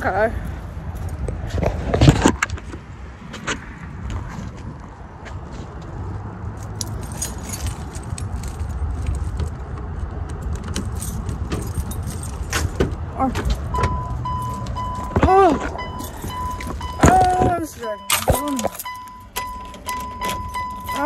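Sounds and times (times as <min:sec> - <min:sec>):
car keys jangling: 0:06.6 - 0:21.0
car door chime beeping: 0:13.7 - 0:21.0.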